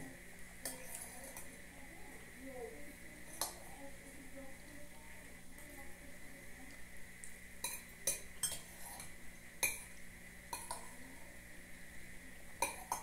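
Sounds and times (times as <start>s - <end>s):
spoon clinking against glass bowl: 7.6s - 9.9s.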